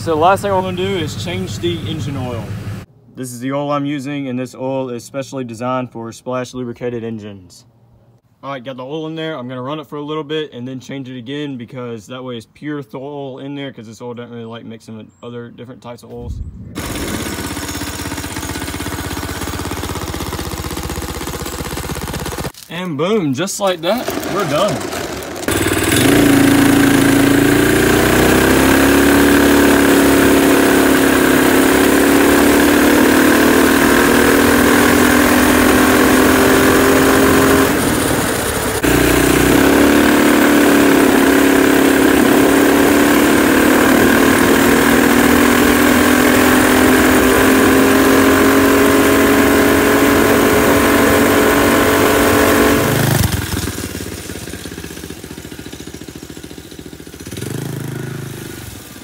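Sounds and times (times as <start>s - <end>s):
small engine at high revs: 16.8s - 22.6s, 23.7s - 59.0s.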